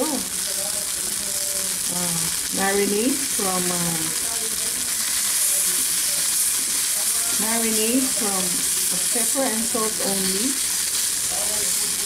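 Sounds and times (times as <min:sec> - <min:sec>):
chicken sizzling in a skillet: 0:00.0 - 0:12.0
spatula moving food: 0:03.4 - 0:12.0.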